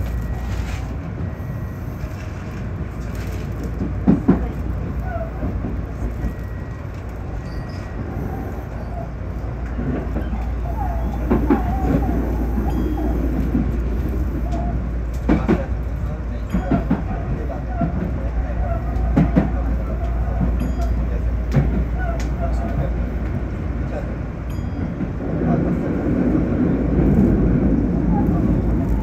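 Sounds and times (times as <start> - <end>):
train low rumble: 0.0 - 29.0
wheels squealing: 5.0 - 14.9.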